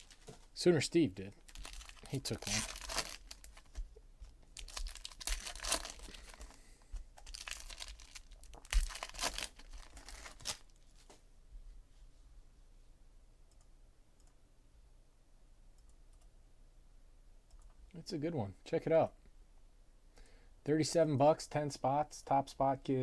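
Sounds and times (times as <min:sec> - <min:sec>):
foil wrappers crinkling and tearing: 0:00.0 - 0:00.4, 0:01.5 - 0:03.8, 0:04.6 - 0:06.6, 0:07.2 - 0:10.8.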